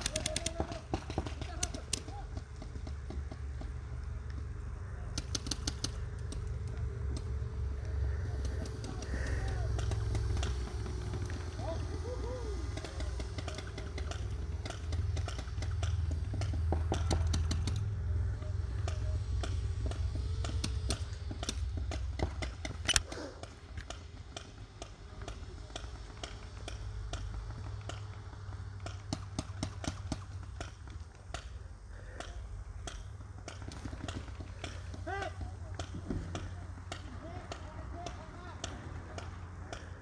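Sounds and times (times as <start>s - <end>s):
distant shouts: 0.0s - 3.0s, 6.8s - 15.3s, 33.8s - 40.0s
paintball markers firing: 0.0s - 40.0s.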